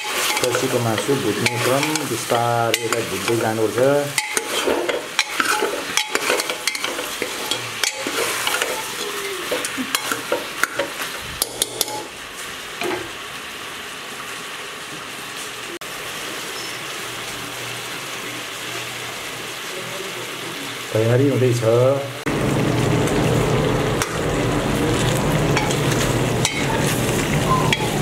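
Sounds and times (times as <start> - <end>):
metal spoon scraping pot: 0.0 - 12.1, 25.6 - 28.0
meat sizzling in oil: 0.0 - 28.0.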